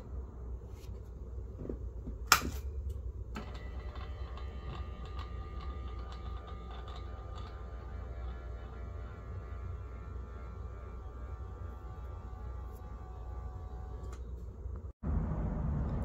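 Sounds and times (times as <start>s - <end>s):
electric gear motor whining: 3.4s - 14.4s.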